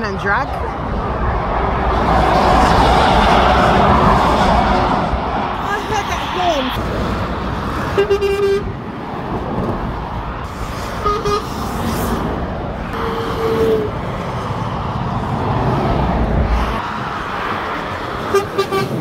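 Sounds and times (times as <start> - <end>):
motorway traffic rumble: 0.0 - 19.0
vehicle horns tooting: 7.9 - 8.7, 11.0 - 11.6, 12.9 - 14.0, 18.3 - 19.0.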